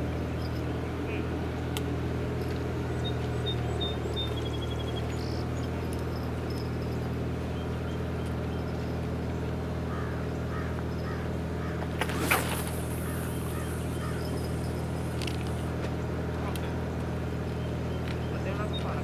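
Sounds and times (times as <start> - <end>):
low engine drone: 0.0 - 19.0
fishing line running off reel: 11.9 - 15.7
fishing rod cast swish: 12.0 - 13.7.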